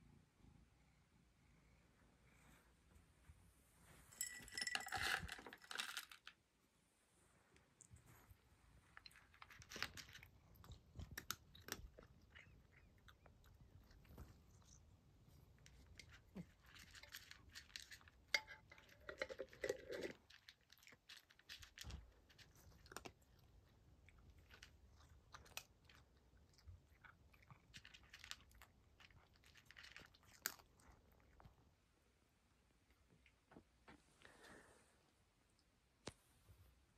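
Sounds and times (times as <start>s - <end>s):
cat crunching dry kibble: 4.2s - 6.3s, 8.9s - 31.6s.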